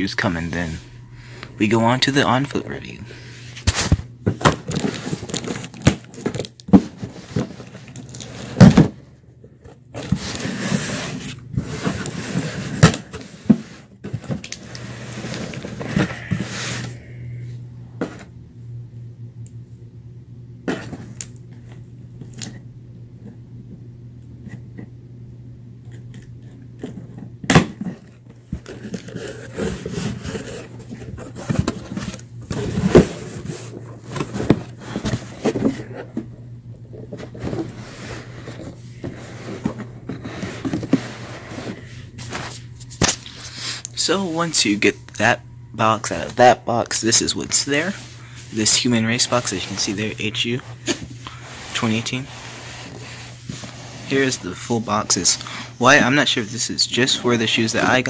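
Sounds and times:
steady low hum: 0.0s - 58.0s
cardboard scraping and rustling: 3.5s - 9.0s, 9.9s - 17.0s, 27.8s - 44.4s, 47.2s - 55.4s.

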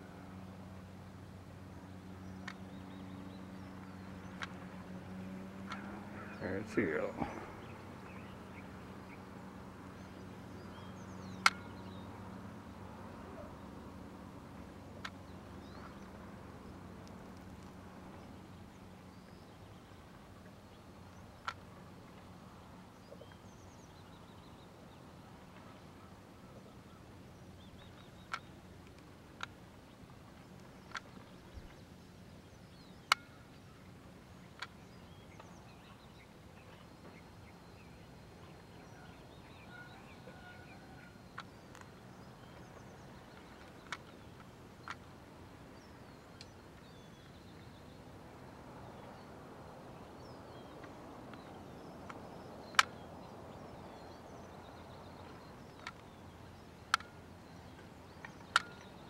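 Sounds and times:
low steady hum: 0.0s - 59.0s
sharp clicks: 50.8s - 53.0s, 58.2s - 59.0s.

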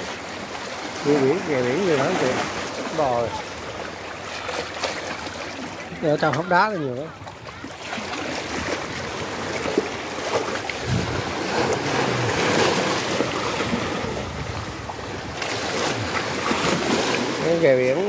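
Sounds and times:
waves sloshing among rocks: 0.0s - 18.0s
wind buffeting microphone: 10.6s - 17.0s.

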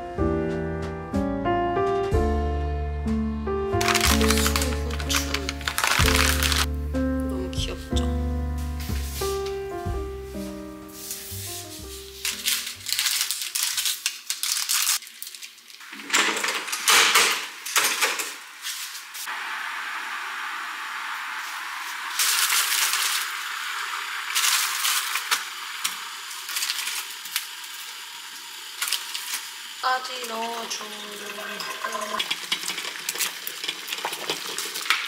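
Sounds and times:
pan sizzling: 3.6s - 16.7s, 17.4s - 35.0s
packet rustling: 3.8s - 6.7s, 11.9s - 16.9s, 22.1s - 23.4s, 24.3s - 27.7s
utensils clattering against pan: 15.9s - 18.4s.

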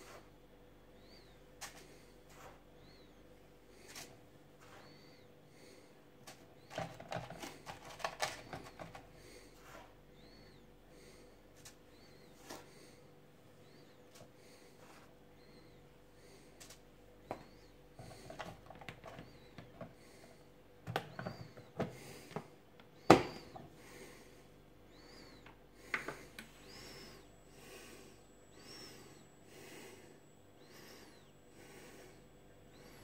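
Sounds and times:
plastic lid snapping shut: 23.1s - 23.4s
faint whistling hiss: 24.9s - 25.4s.

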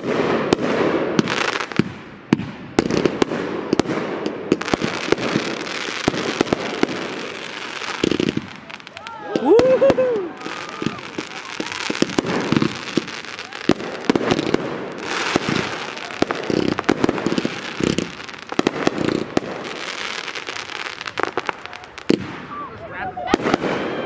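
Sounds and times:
continuous fireworks crackle: 0.0s - 24.0s
fireworks bangs and pops: 0.0s - 24.0s.

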